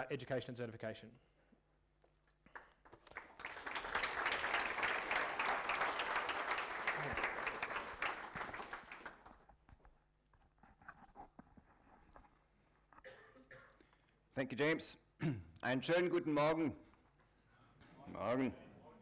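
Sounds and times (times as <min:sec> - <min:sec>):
audience applauding: 0:02.5 - 0:09.5.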